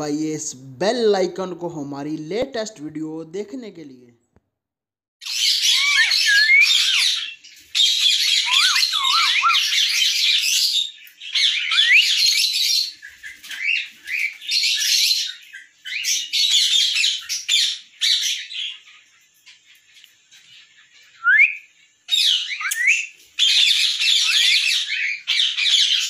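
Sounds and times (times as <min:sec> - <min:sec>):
parrots screeching and chattering: 0:05.2 - 0:26.0.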